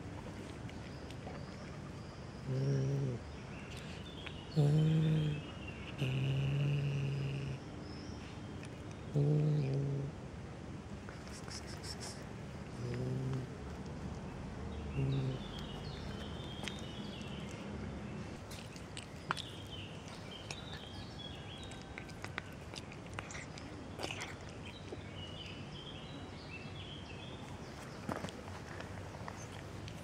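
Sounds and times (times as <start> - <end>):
small birds chirping: 0.0 - 10.1, 11.1 - 30.0
kitten chewing food: 15.0 - 25.6.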